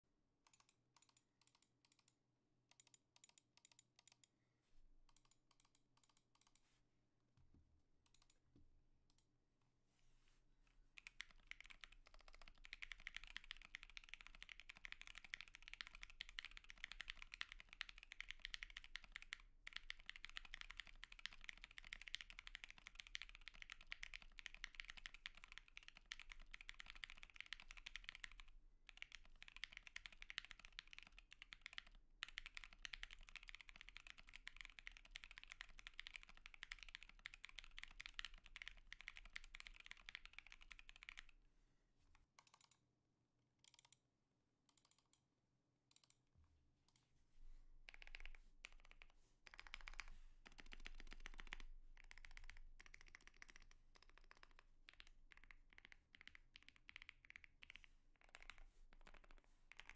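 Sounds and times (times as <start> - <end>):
fast mechanical keyboard typing: 11.0 - 41.3, 47.9 - 59.9.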